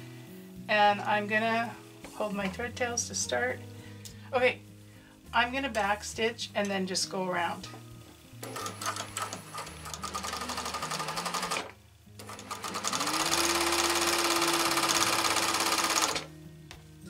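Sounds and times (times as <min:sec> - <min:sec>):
sewing machine stitching: 0:08.4 - 0:16.3.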